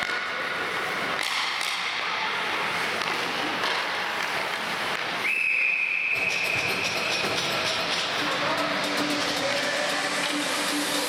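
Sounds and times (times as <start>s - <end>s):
hockey sticks or puck knocking: 0.0s - 2.1s, 2.8s - 5.2s
skates scraping ice: 0.0s - 11.0s.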